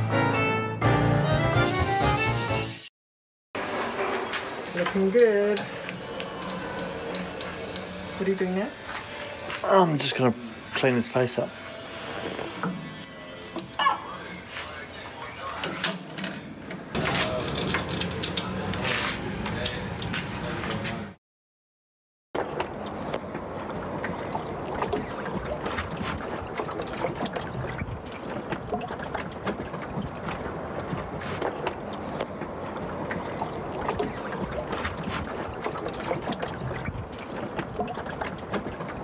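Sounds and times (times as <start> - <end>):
water around a boat: 3.6 - 15.8, 22.4 - 39.0
wind: 3.6 - 21.2, 22.4 - 39.0.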